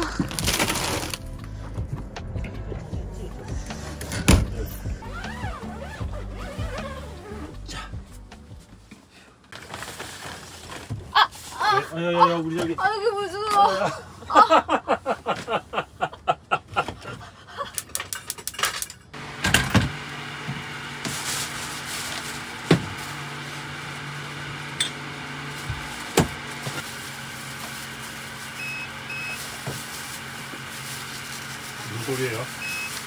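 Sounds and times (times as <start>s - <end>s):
high refrigerator alarm beeps: 28.5s - 29.6s, 32.5s - 33.0s.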